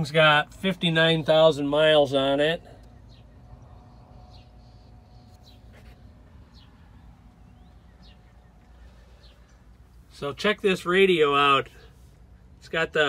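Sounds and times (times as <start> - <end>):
low steady hum: 0.0 - 13.0
faint bird chirping: 2.6 - 10.4.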